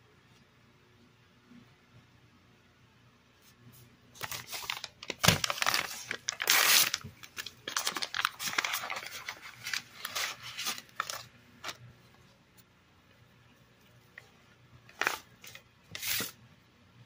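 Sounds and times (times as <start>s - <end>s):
foil pouch crinkling: 4.2s - 11.8s, 14.9s - 16.3s
foil pouch ripping open: 4.2s - 11.8s.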